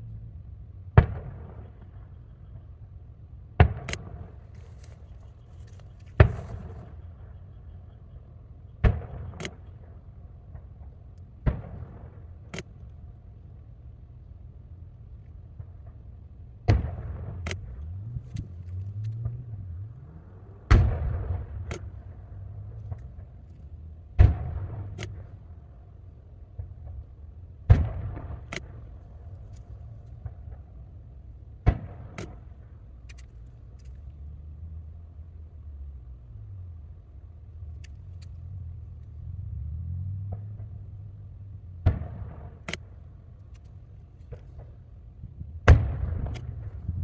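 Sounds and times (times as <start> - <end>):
distant firework shells bursting: 8.8 - 13.1, 20.6 - 33.7, 41.7 - 47.0.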